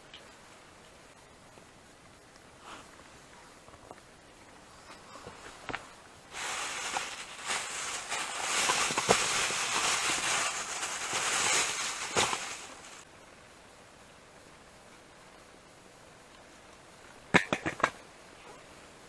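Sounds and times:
plastic bag rustling: 0:05.0 - 0:13.0.

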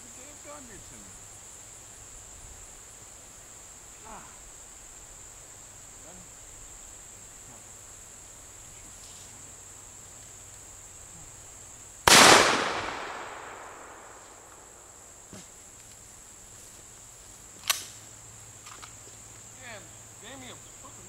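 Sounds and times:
high drone of insects: 0:00.0 - 0:21.0
shotgun shot with echo: 0:12.1 - 0:14.8.

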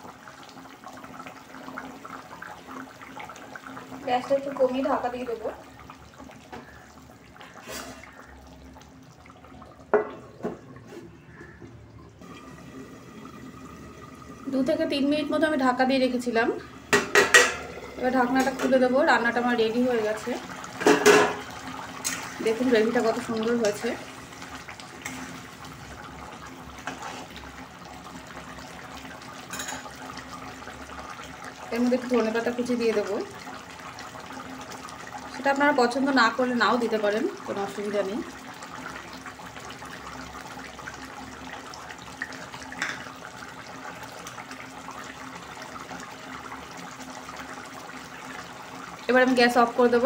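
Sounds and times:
gravy bubbling in a pan: 0:00.0 - 0:50.0
metal plate clanking on pan: 0:16.9 - 0:17.7, 0:20.8 - 0:21.4, 0:29.5 - 0:29.8
spatula stirring in pan: 0:26.8 - 0:27.5.

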